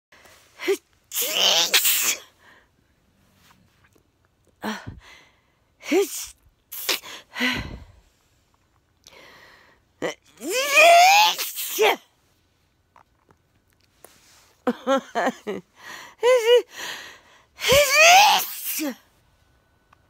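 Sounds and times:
woman sneezing: 0.6s - 2.3s, 5.8s - 7.2s, 10.0s - 12.1s, 17.6s - 19.0s.

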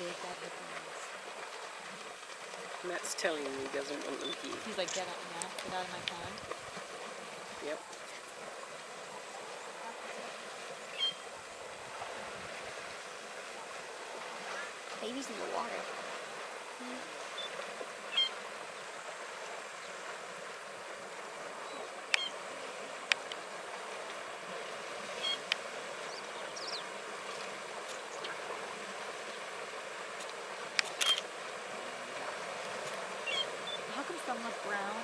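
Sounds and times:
insects buzzing: 0.0s - 35.0s
sharp clicks: 30.7s - 31.3s.

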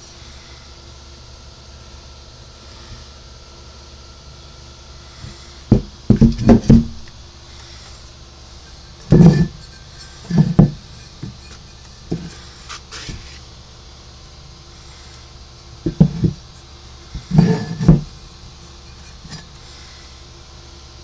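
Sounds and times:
faint steady hum: 0.0s - 21.0s
metal parts knocking on tarp: 5.7s - 7.0s.

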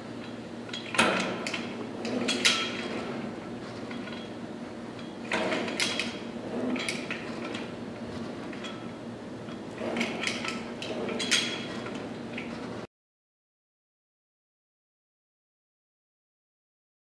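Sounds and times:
cable machine weights clanking: 0.2s - 12.8s.

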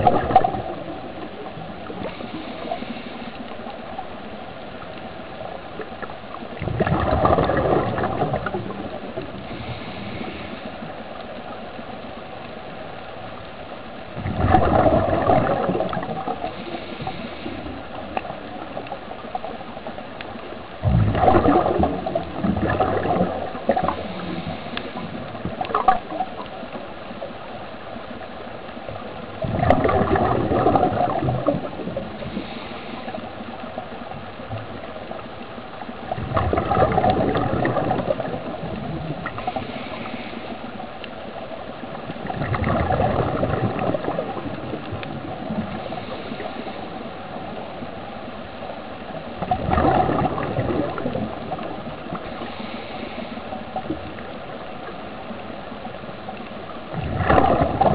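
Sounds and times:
air bubbles gurgling underwater: 0.0s - 4.1s, 4.8s - 11.6s, 14.1s - 27.3s, 28.8s - 40.3s, 41.9s - 47.9s, 49.0s - 55.4s, 56.3s - 57.9s
steady air hiss: 1.8s - 4.9s, 9.4s - 14.2s, 32.2s - 34.1s, 39.4s - 41.9s, 52.2s - 53.8s.

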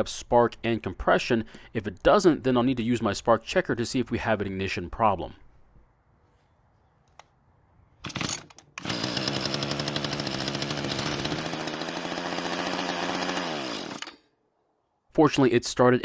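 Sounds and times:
small two-stroke engine running: 8.1s - 14.2s.

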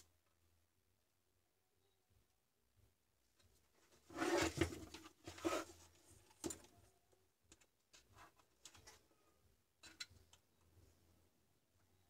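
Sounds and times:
metal case sliding on wood: 4.1s - 5.8s.

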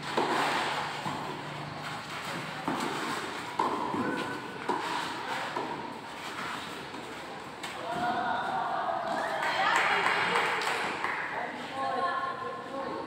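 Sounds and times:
tennis ball bouncing on court: 0.0s - 1.6s, 2.3s - 6.0s
tennis ball hit by rackets: 0.0s - 5.9s.

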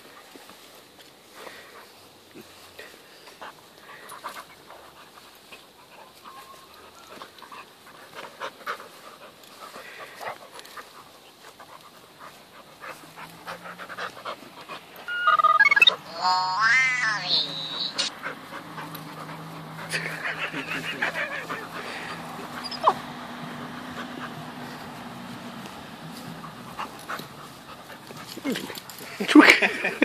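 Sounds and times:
dogs panting heavily: 0.0s - 15.1s, 18.0s - 30.0s
dog crying out: 15.0s - 18.1s, 19.9s - 23.0s.

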